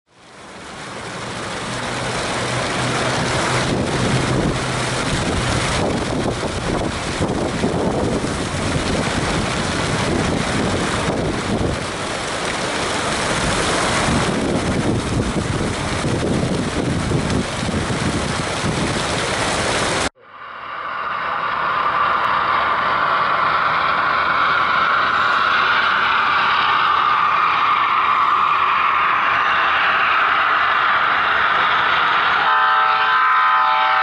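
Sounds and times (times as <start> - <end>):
fountain jets splashing: 0.1 - 20.1
wind buffeting microphone: 1.7 - 20.1.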